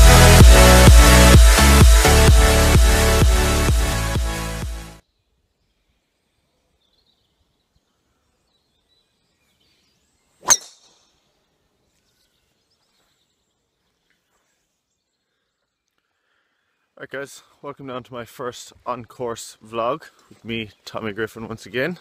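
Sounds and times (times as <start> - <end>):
golf club striking ball: 10.4 - 10.9.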